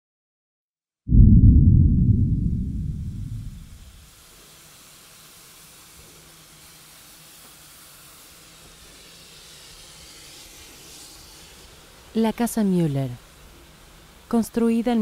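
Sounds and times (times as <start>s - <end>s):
steam hissing from locomotive: 3.9s - 15.0s.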